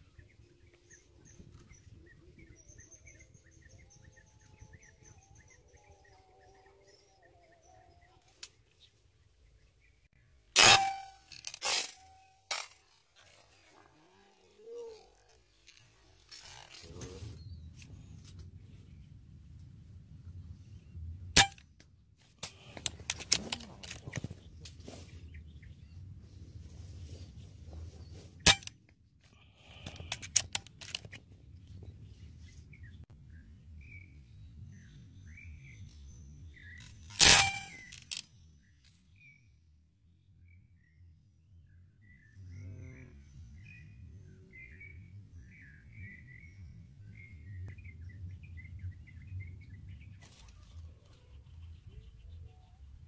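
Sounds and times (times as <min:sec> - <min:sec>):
small birds chirping: 0:00.0 - 0:10.4, 0:40.2 - 0:53.0.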